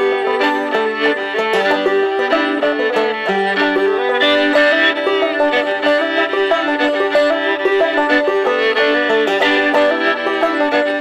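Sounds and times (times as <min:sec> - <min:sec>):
bowed fiddle melody: 0:00.0 - 0:11.0
plucked banjo rhythm: 0:00.0 - 0:11.0.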